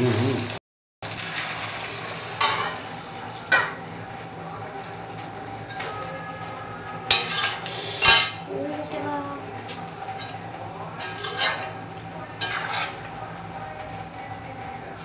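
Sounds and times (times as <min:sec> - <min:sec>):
spatula scraping a wok: 0:07.0 - 0:08.4, 0:09.7 - 0:13.2.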